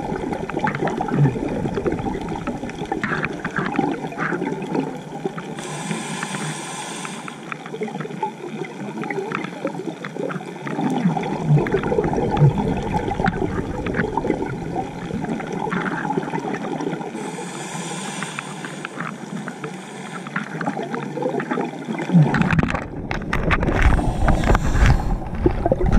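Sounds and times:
crackle of small clicks: 0.0 - 17.1, 18.2 - 25.9
bubbling exhale: 5.5 - 7.5, 10.8 - 20.9, 23.6 - 25.9
diver breathing through regulator: 5.6 - 7.5, 17.1 - 20.6, 23.8 - 25.5.

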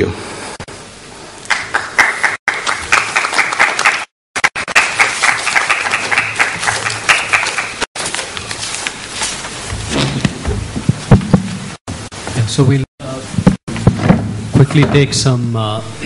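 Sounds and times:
audience applauding: 1.5 - 7.9.

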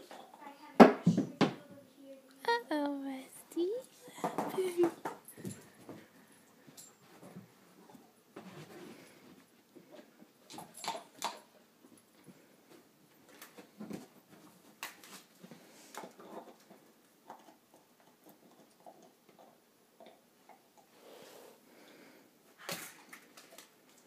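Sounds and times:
dog gnawing on a bone: 13.3 - 20.9.

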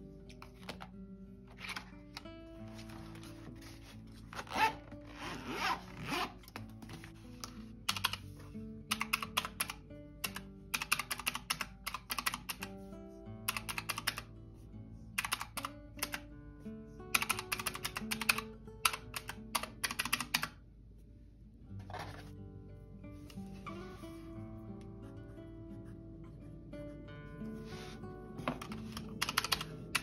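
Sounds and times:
soft background music: 0.0 - 30.0
calculator keys clicking: 7.9 - 8.2, 8.9 - 12.7, 13.5 - 14.3, 15.2 - 16.2, 17.2 - 20.6, 28.5 - 30.0.

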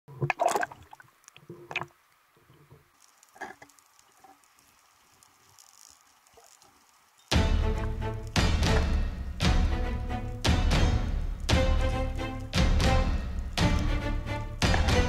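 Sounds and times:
water sloshing and splashing: 0.1 - 8.9, 13.6 - 15.0.

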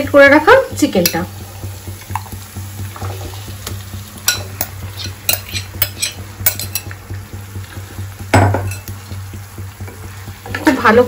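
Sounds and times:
low steady hum: 0.0 - 11.0
spoon scraping a glass bowl: 5.0 - 6.9.

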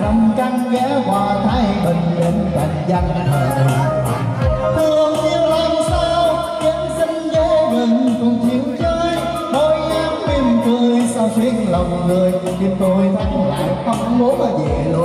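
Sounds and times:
pop song with vocal over beat: 0.0 - 15.0.

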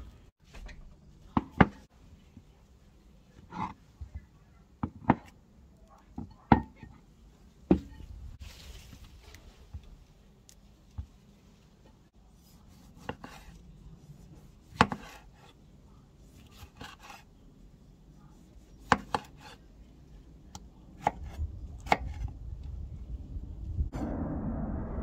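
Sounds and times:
knife chopping on wooden board: 14.7 - 15.5, 18.8 - 19.6, 21.0 - 22.3.

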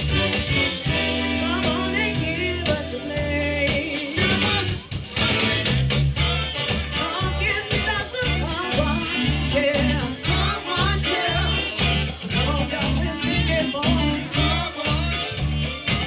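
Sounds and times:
funk band playing: 0.0 - 16.0
heavy bass notes pulsing: 0.0 - 16.0
woman singing: 1.1 - 4.8, 6.8 - 15.4.

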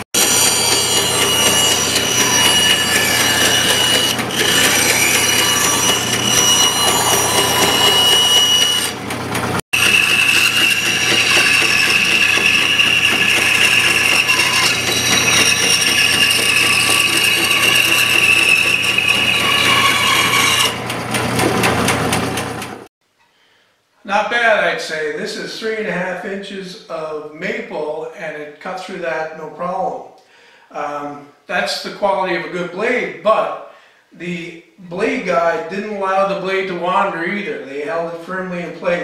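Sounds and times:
band saw cutting wood: 0.0 - 22.9.

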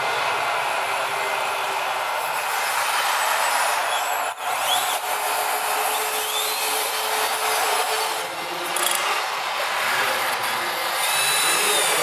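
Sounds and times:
model loader motor whirring: 5.8 - 12.0.

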